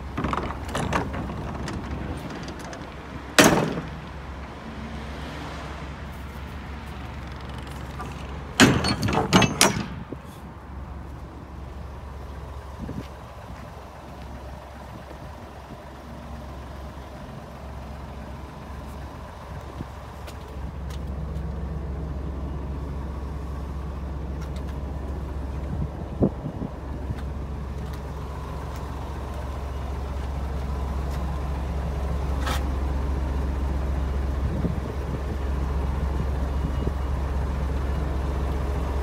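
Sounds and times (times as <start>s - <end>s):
diesel engine idling: 0.0s - 39.0s
sharp knocks: 0.2s - 4.1s, 7.9s - 10.2s.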